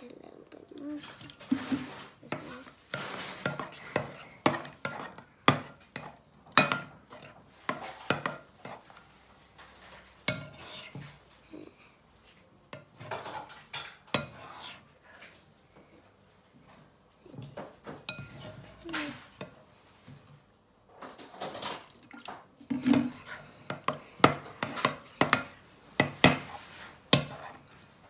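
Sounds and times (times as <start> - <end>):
spoon knocking and scraping bowl: 1.0 - 9.0, 9.6 - 11.2, 12.7 - 14.8, 17.4 - 20.2, 22.6 - 27.8.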